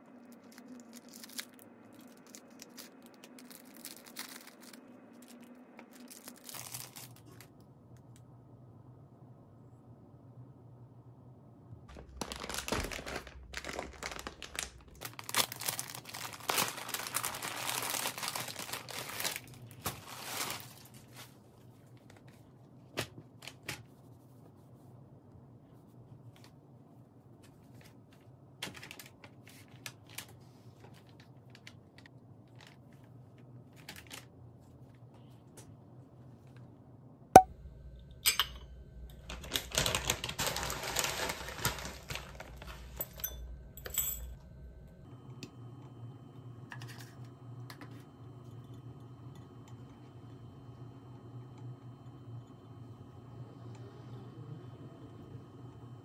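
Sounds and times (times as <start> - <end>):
plastic bag crinkling: 0.0 - 7.6, 11.9 - 21.4, 39.2 - 43.2.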